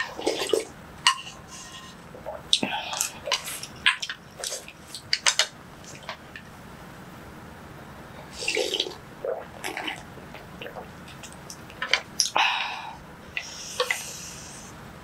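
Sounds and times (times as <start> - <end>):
person slurping soup: 8.3 - 10.9.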